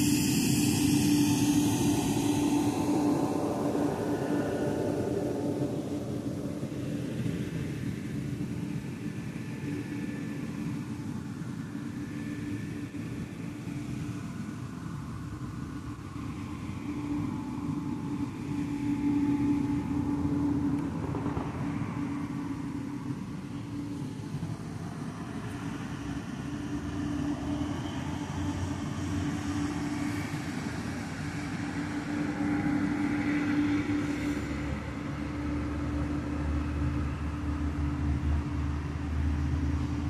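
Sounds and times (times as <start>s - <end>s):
steady low hum: 0.0s - 40.0s.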